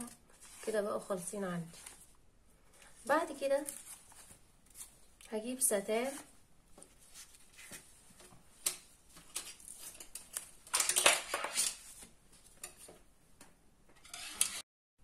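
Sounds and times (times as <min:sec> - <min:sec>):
ribbon rustling over cardboard: 0:02.8 - 0:05.3, 0:06.0 - 0:08.3.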